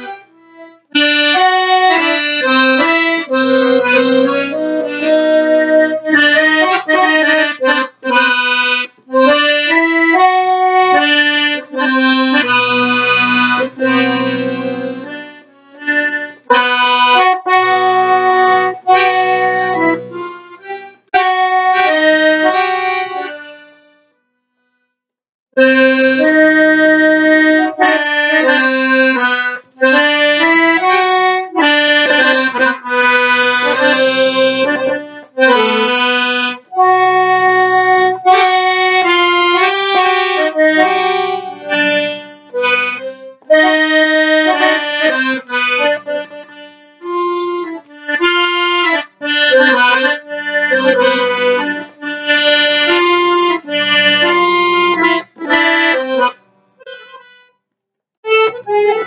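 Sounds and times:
accordion solo improvisation: 0.0 - 24.8, 25.6 - 59.0.

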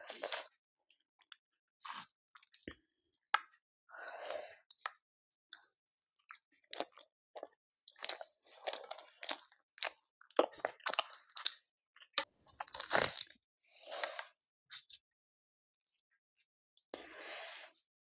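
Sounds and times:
person chewing food: 0.0 - 0.6, 1.8 - 15.0.

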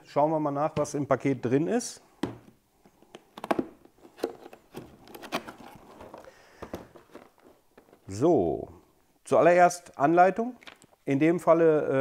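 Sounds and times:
cardboard rustling and crinkling: 3.1 - 8.2.

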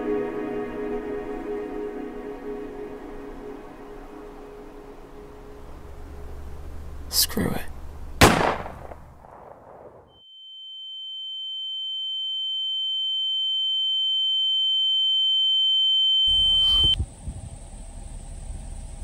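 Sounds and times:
high-pitched pure tone: 0.0 - 6.0, 10.5 - 17.0
car engine rumble: 3.1 - 8.2, 16.3 - 19.0.

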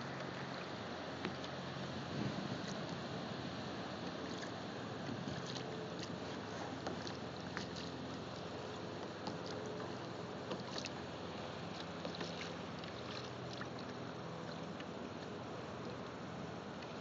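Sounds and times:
wind and sea wash: 0.0 - 16.3
water splashes against hull: 4.0 - 16.1.

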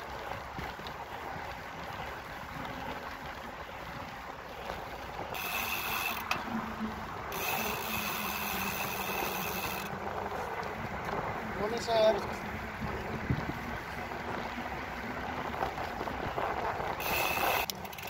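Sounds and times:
bicycle rattle: 0.0 - 18.0
tyres rolling over paving stones: 0.0 - 18.0
wind on microphone: 5.2 - 18.0.

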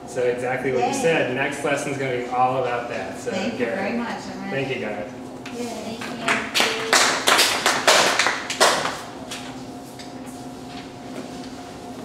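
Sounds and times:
faint steady hum: 0.0 - 12.0
people clapping: 5.9 - 9.2.

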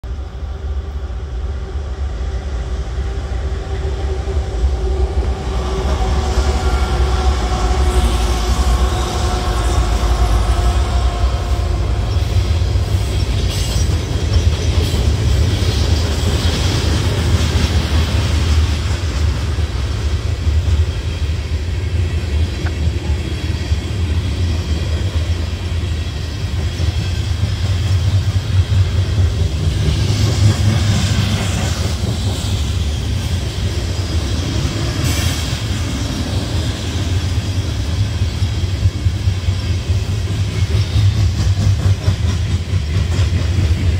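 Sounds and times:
diesel locomotive passing: 0.0 - 43.9
train rumbling: 0.0 - 43.9
steel wheels clattering on rails: 12.0 - 21.4, 22.2 - 43.9.

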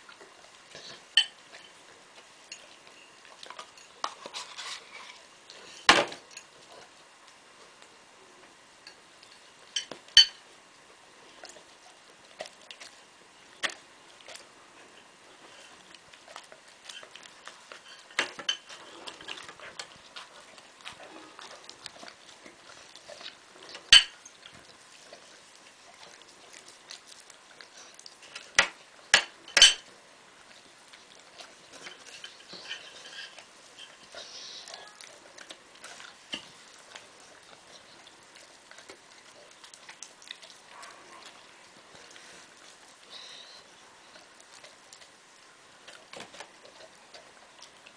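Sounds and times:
dog chewing: 0.0 - 8.0, 8.8 - 47.9
cutlery clinking on a plate: 9.8 - 10.4, 28.6 - 29.8.

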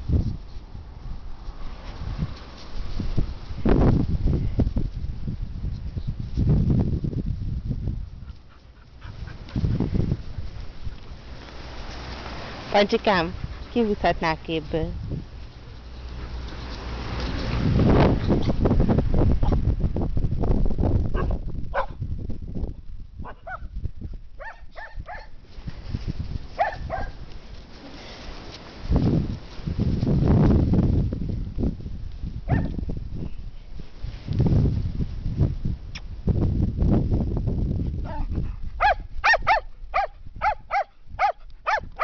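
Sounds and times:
dog yipping and barking: 21.2 - 22.0, 23.2 - 23.7, 24.4 - 25.3, 26.6 - 27.2, 32.5 - 32.7, 38.1 - 42.0.

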